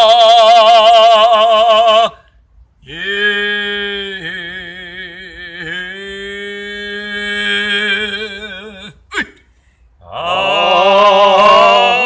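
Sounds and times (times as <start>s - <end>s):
person singing a long note: 10.1s - 12.0s.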